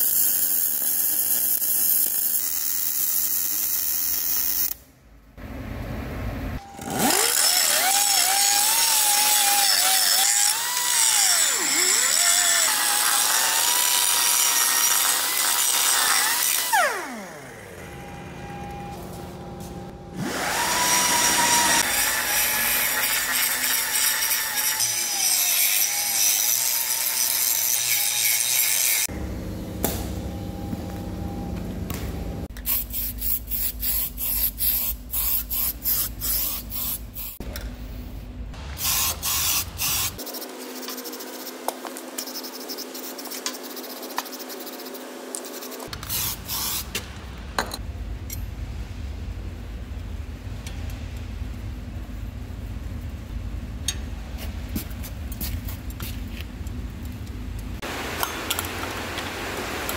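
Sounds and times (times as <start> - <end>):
power tool motor running: 6.7 - 18.9, 20.1 - 26.8
low hum: 16.9 - 20.3, 29.1 - 32.5.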